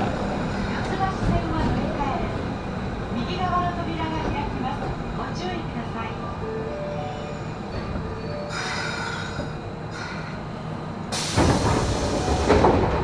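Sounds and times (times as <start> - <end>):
train wheels rumbling: 0.0 - 6.5, 7.5 - 13.0
hiss: 11.1 - 12.8.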